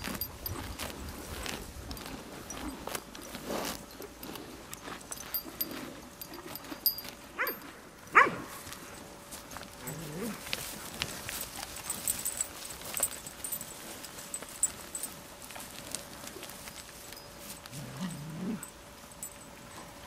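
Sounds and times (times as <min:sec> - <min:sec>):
clicks and rustles: 0:08.8 - 0:17.8
cow low grunt: 0:09.8 - 0:10.6, 0:17.7 - 0:18.7
cow high call: 0:17.6 - 0:18.8.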